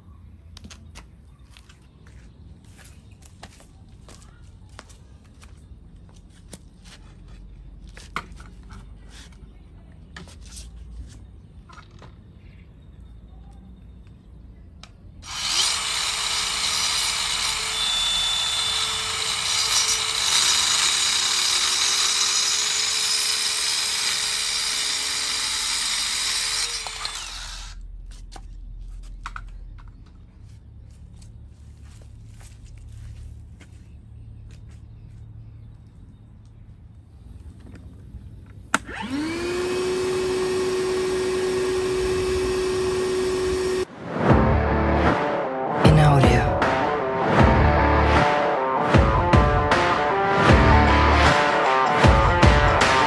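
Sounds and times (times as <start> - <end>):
circular saw cutting: 15.2 - 27.8, 38.9 - 43.9.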